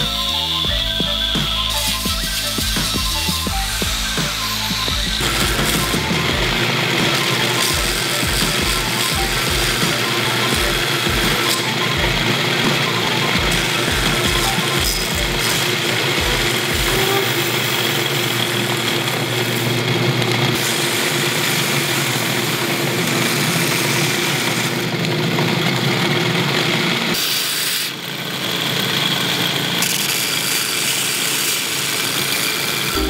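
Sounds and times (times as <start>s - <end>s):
belt grinder grinding metal: 0.0s - 33.0s.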